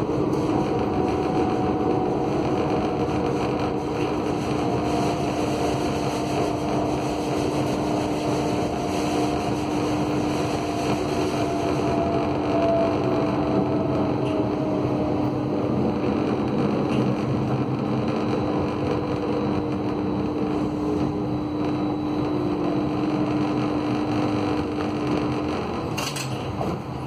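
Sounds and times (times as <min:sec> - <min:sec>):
tram hum: 0:00.0 - 0:27.0
tram rumbling: 0:00.0 - 0:27.0
whine falling in pitch: 0:08.4 - 0:25.8.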